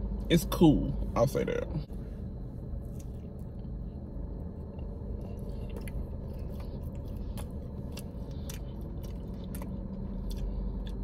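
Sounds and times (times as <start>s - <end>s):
steady low hum: 0.0s - 11.0s
person chewing cookie: 2.8s - 11.0s.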